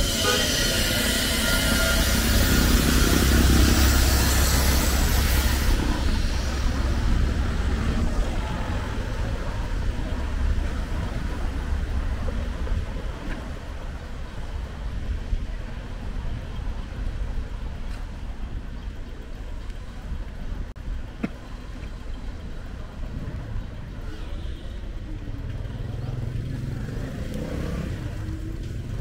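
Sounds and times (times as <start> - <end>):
traffic noise: 0.0 - 29.0
vehicle passing with rumble: 25.2 - 29.0.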